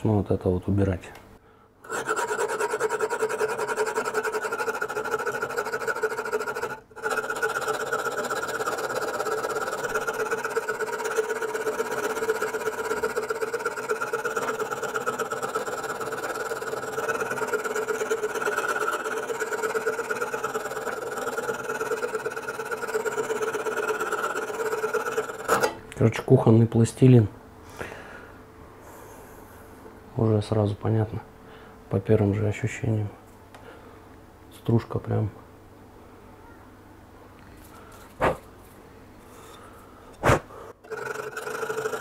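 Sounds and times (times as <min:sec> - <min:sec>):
file rasping on steel: 0:01.8 - 0:25.8, 0:40.8 - 0:42.0.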